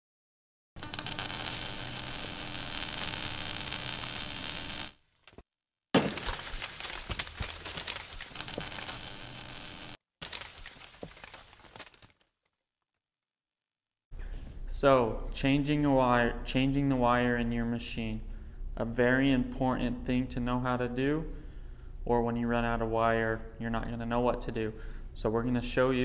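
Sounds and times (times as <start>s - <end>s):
crackling clicks: 0.8s - 5.0s, 6.8s - 12.2s.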